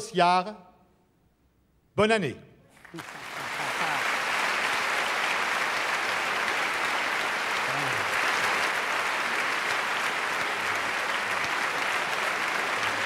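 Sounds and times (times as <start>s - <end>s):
audience applauding: 2.7s - 13.0s.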